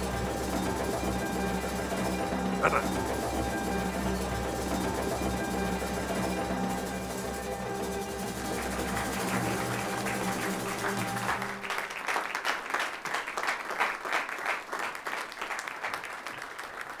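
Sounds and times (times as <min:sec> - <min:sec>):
crowd applauding: 0:00.0 - 0:03.7, 0:07.8 - 0:17.0
music: 0:00.0 - 0:14.0.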